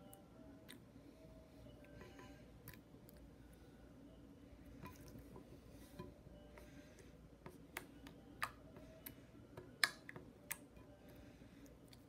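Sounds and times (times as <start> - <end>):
slime clicking and popping: 9.7 - 10.7.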